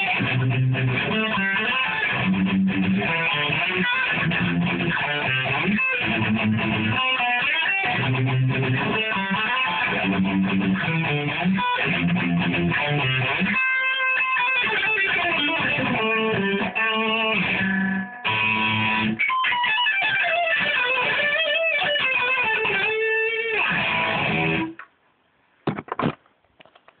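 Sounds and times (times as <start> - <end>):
electric guitar playing: 0.0 - 24.8.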